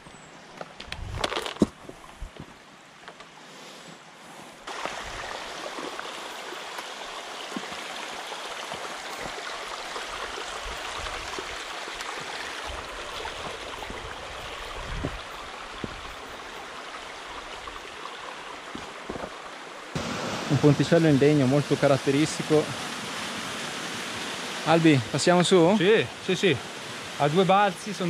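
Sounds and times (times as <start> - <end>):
mountain stream water rushing: 1.4 - 28.0.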